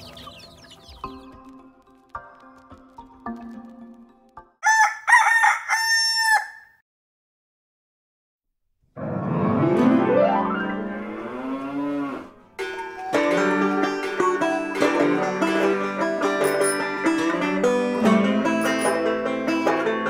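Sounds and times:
rooster crowing: 4.6 - 6.8
plucked-string music: 12.6 - 20.0.

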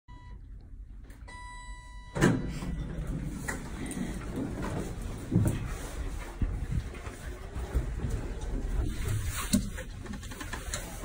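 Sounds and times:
elevator doors sliding open: 2.0 - 6.5.

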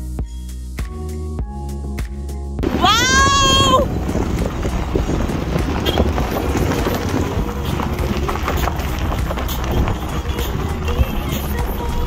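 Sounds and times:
car tyres crunching over stones: 2.6 - 12.0
low rumble: 2.6 - 12.0.

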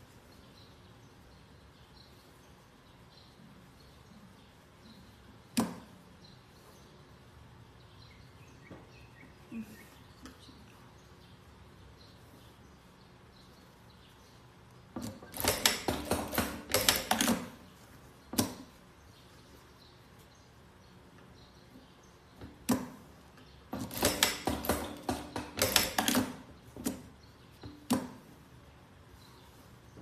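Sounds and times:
sewing machine clacks: 15.0 - 17.6, 23.7 - 27.0
sewing machine stitching: 15.0 - 17.6, 23.8 - 27.0.

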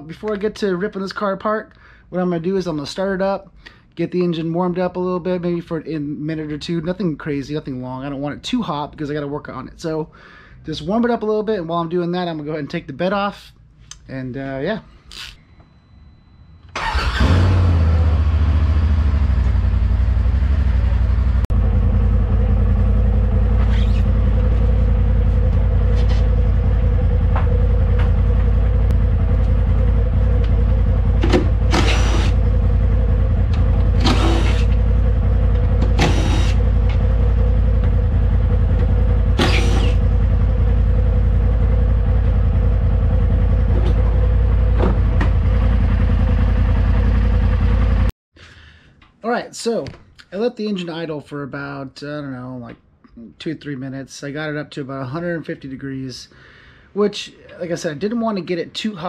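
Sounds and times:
engine idling: 16.8 - 48.1
impact driver whirring: 31.3 - 32.4, 34.0 - 34.8, 35.8 - 36.7, 39.4 - 40.1.

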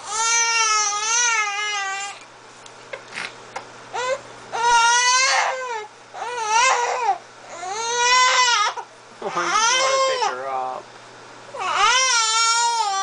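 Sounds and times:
infant crying: 0.0 - 2.2, 3.9 - 10.4, 11.6 - 13.0.

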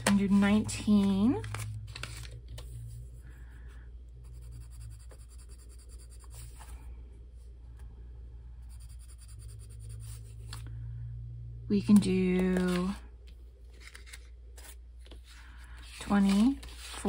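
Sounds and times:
colored pencil scratching on paper: 4.2 - 6.7, 8.6 - 10.6.

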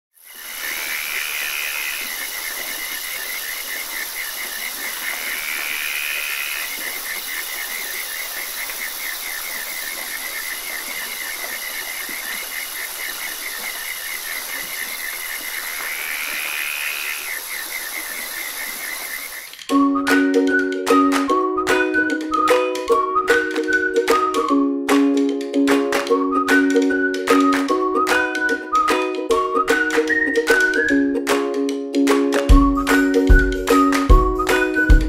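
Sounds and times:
pulsed frog trill: 0.2 - 19.6
high insect whine: 0.2 - 19.7
rising frog call: 0.2 - 19.7.

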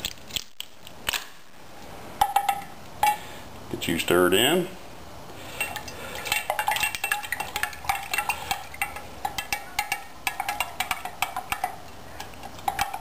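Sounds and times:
stirrer clinking against glass jar: 5.6 - 13.0.

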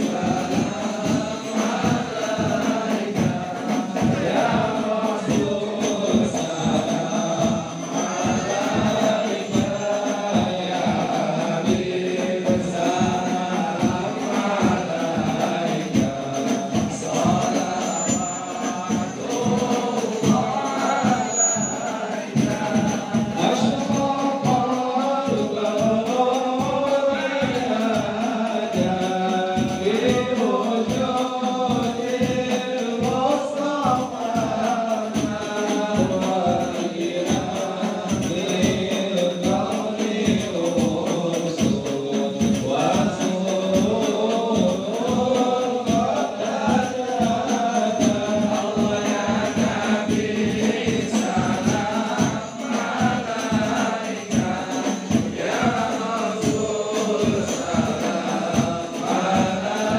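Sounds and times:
frame drums beating: 0.0 - 59.9
group chanting in unison: 0.0 - 59.9.

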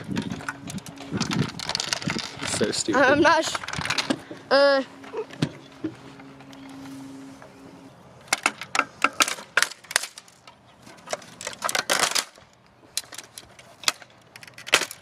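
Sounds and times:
plastic clicking and cracking: 8.3 - 15.0.

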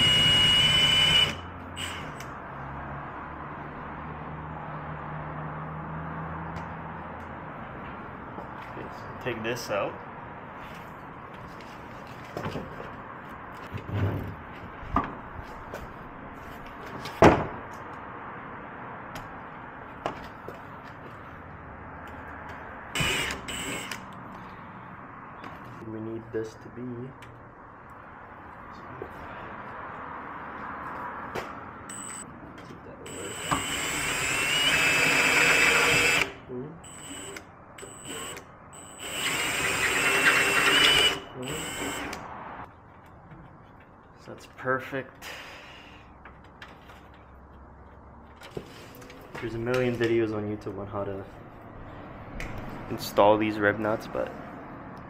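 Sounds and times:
cordless drill whining: 0.0 - 2.3, 23.0 - 24.0, 33.1 - 42.2.

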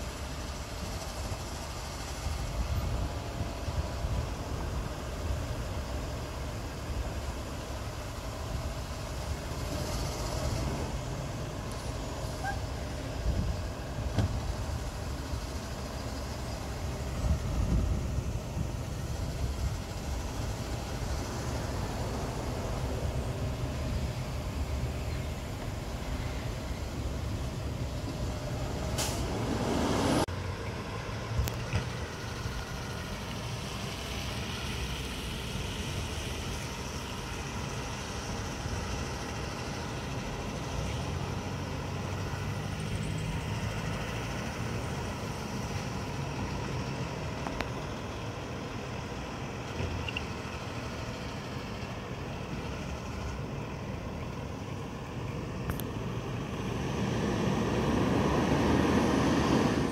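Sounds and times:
garbage truck diesel engine running: 0.0 - 59.9
loud air hiss: 8.0 - 30.3.

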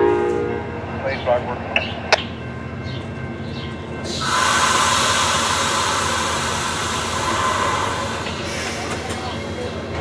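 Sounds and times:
train compressed air hiss: 4.1 - 9.0.

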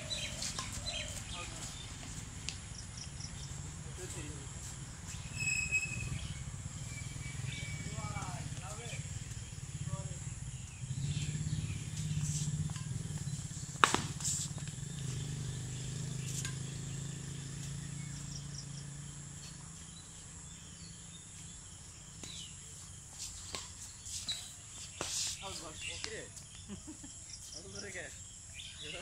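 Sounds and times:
high insect buzz: 0.0 - 25.8
racket striking shuttlecock: 0.2 - 1.6, 12.0 - 14.9, 16.2 - 16.8, 23.4 - 24.4.

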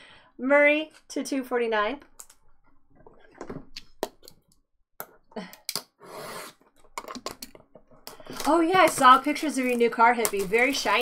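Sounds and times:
cards and box tapping: 6.9 - 11.0
cardboard rustle: 8.2 - 11.0.

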